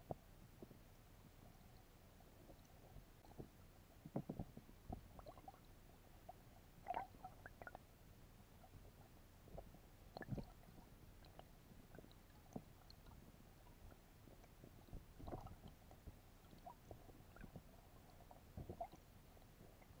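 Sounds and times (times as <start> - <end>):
soft low thumps: 9.4 - 20.0.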